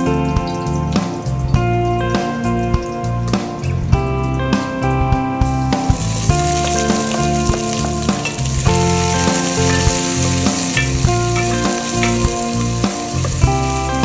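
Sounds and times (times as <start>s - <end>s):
background music: 0.0s - 14.0s
onion sizzling in oil: 5.4s - 14.0s.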